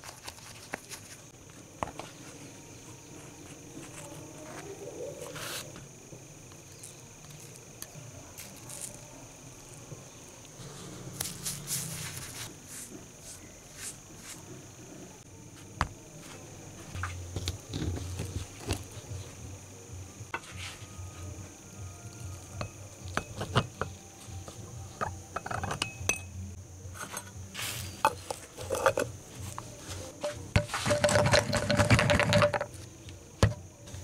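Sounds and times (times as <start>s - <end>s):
metal and glass clinks: 25.4s - 26.3s
metal lid screwed onto jar: 28.0s - 29.1s.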